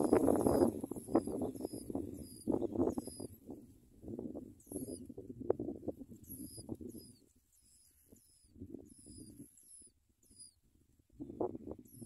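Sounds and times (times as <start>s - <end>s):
nestlings begging cheeps: 0.0s - 3.4s.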